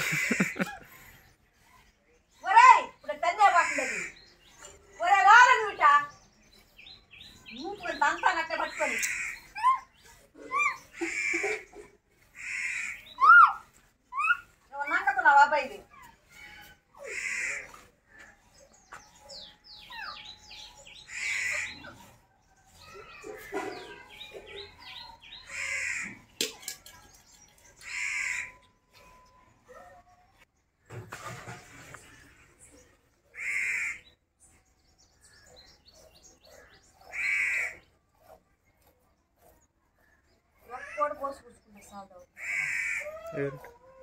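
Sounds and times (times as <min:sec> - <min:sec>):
birds chirping: 0:00.0 - 0:44.0
crows cawing: 0:03.6 - 0:04.2, 0:12.4 - 0:13.0, 0:17.0 - 0:18.2, 0:25.5 - 0:26.2, 0:27.8 - 0:28.6, 0:33.4 - 0:34.1, 0:37.1 - 0:37.8, 0:42.4 - 0:43.1.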